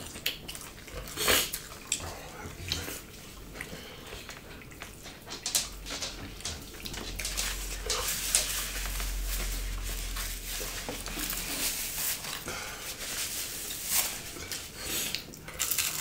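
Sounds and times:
eating sounds: 0.0s - 16.0s
clicks against plates: 4.3s - 8.5s.

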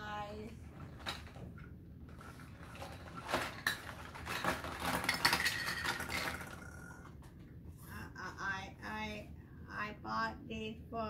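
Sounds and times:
plastic toys clattering onto wood: 0.8s - 6.9s.

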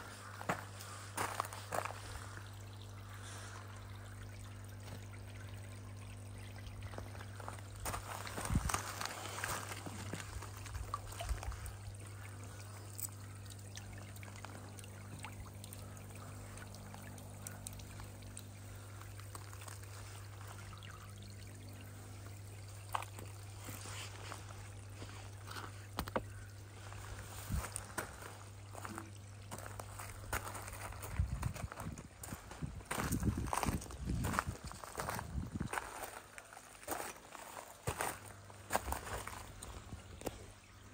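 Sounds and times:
steady low hum: 0.0s - 40.9s
water jet splashing into pond: 0.0s - 40.9s.

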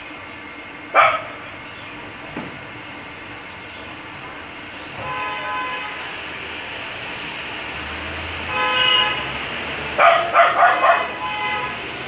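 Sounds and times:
street traffic: 0.0s - 12.0s
vehicle horns honking: 4.9s - 6.2s, 8.4s - 9.5s, 10.8s - 12.0s.

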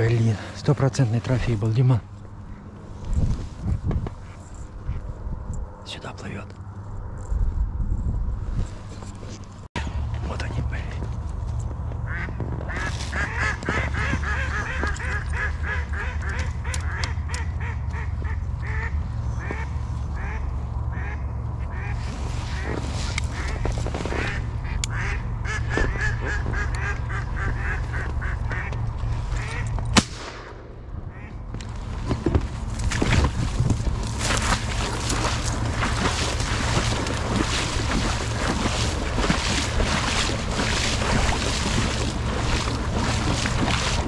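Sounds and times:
ducks quacking rapidly: 12.1s - 29.7s
loud shotgun shot: 30.0s - 30.8s.

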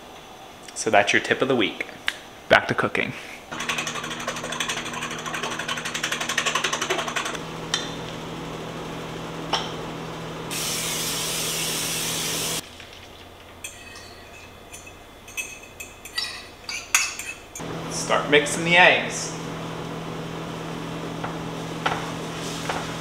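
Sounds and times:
fork beating eggs in bowl: 3.5s - 7.4s
aerosol spray hissing: 10.5s - 12.6s
clinks and scrapes in pan: 13.6s - 17.4s.

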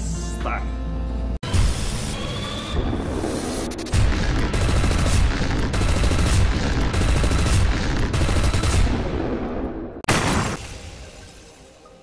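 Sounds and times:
crackling rumbling barrage: 2.1s - 11.5s.

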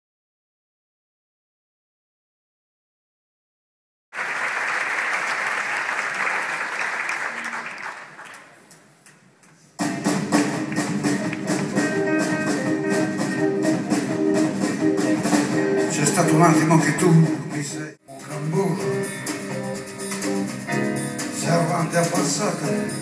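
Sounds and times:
audience applauding: 4.2s - 8.9s, 10.1s - 12.7s
live band playing a song: 9.8s - 23.0s.

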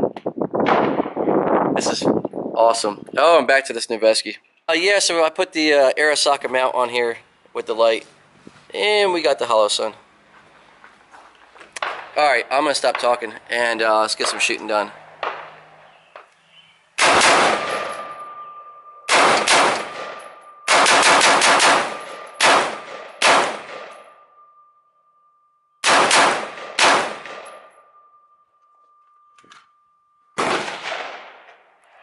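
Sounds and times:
suppressed rifle gunshots: 17.0s - 18.1s, 19.1s - 23.9s, 25.8s - 27.4s, 30.4s - 31.6s.

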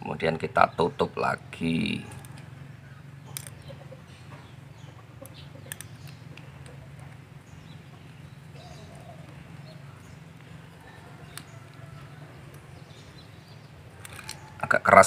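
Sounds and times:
faint bird calls: 0.0s - 15.0s
steady low hum: 0.0s - 15.0s
small metal parts clicking: 2.0s - 2.5s, 3.2s - 3.8s, 5.2s - 7.2s, 13.9s - 14.6s.

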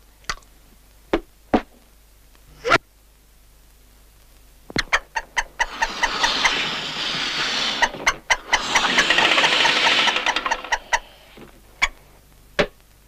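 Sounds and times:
squeaky hand pump strokes: 5.2s - 11.4s
hiss of air: 5.4s - 11.5s.

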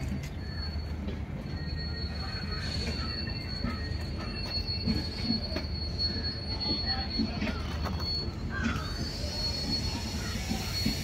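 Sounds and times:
high-pitched squeal of train: 0.0s - 11.0s
wheels rumbling on rail: 0.0s - 11.0s.

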